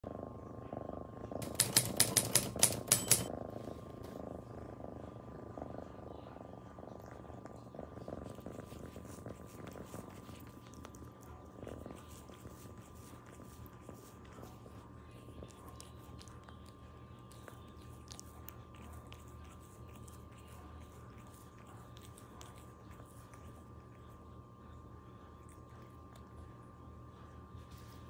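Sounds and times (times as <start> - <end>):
kitten purring: 0.0 - 28.0
sharp clicks: 1.4 - 3.3
wet licking ticks: 8.5 - 24.0.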